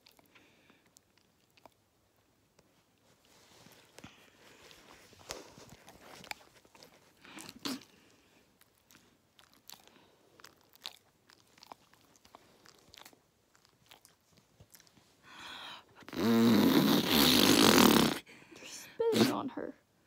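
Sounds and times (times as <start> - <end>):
faint clicks and smacks: 0.0 - 15.3
loud pulsing fart noise: 16.1 - 18.2.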